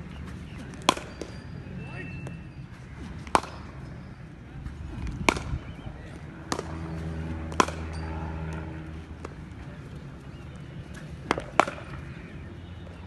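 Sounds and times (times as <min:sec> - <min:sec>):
cricket balls struck by bats: 0:00.5 - 0:01.4, 0:03.2 - 0:03.8, 0:05.0 - 0:05.8, 0:06.4 - 0:08.6, 0:10.4 - 0:12.3.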